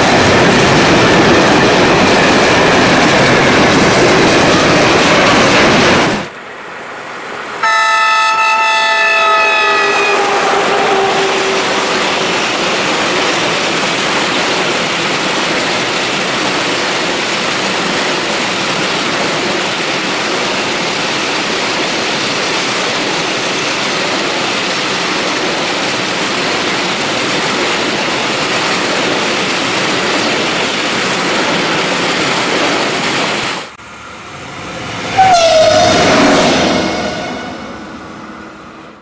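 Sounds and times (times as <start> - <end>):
freight train wheels rushing: 0.0 - 7.7, 8.7 - 39.0
passenger train passing: 0.0 - 39.0
train horn: 7.6 - 12.5, 35.0 - 38.0.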